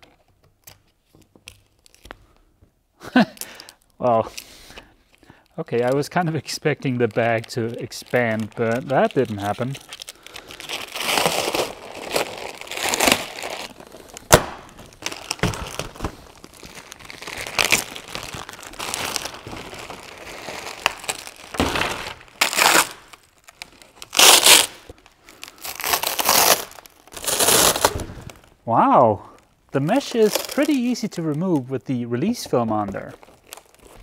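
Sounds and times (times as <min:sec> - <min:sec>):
plastic film crinkling: 0:00.0 - 0:34.0
mesh ripping: 0:05.8 - 0:28.6, 0:29.8 - 0:34.0.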